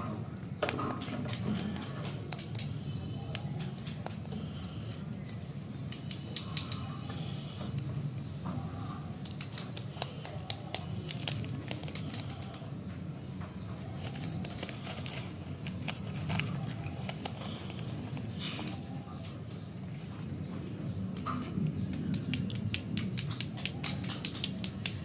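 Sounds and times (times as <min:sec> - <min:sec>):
candy wrapper crinkling and tearing: 0:09.2 - 0:12.7, 0:13.9 - 0:18.4.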